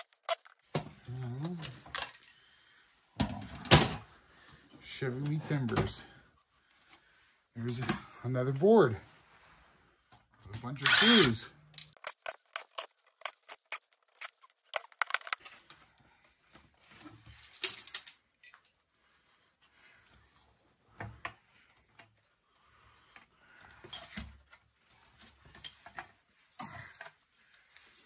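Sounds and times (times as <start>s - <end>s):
small screws clicking and rattling: 0.0s - 0.6s, 11.8s - 15.4s.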